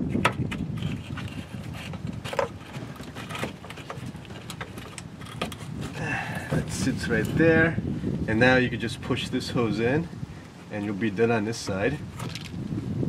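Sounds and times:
rubber hose clicking and rubbing: 0.0 - 7.3.

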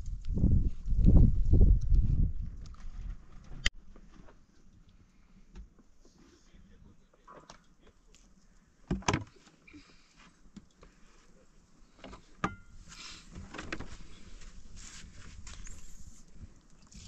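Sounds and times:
liquid pouring and splashing: 16.7 - 17.0.

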